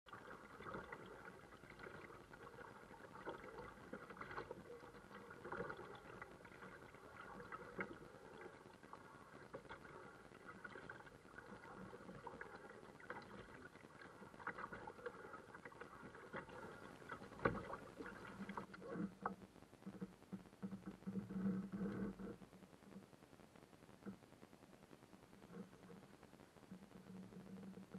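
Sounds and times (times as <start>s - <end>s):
paddle splashing water: 0.1s - 18.7s
water lapping against hull: 0.1s - 19.3s.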